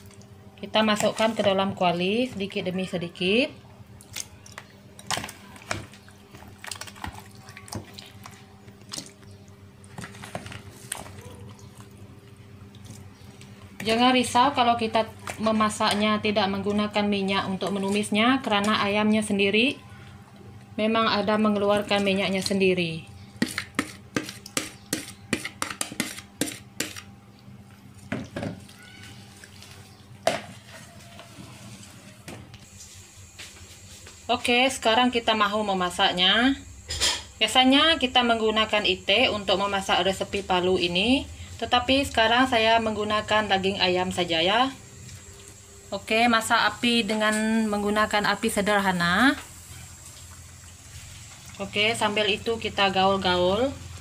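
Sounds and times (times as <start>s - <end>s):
spatula stirring wet chicken: 0.0s - 2.6s, 4.0s - 16.8s, 23.4s - 27.0s, 28.0s - 32.2s.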